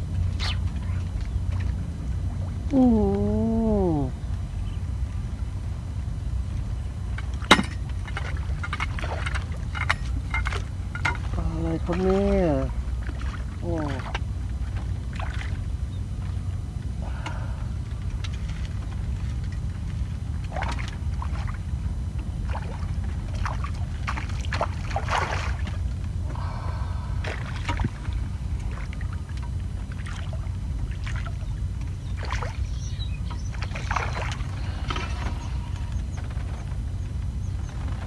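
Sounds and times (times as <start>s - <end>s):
fish splashing in water: 8.0s - 16.3s, 17.0s - 36.8s.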